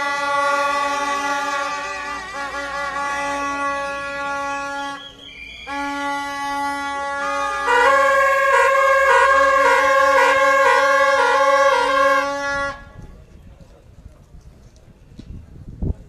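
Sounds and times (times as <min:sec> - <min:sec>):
two-tone horn alternating: 0:00.0 - 0:13.0
long steady horn tones: 0:00.0 - 0:13.4.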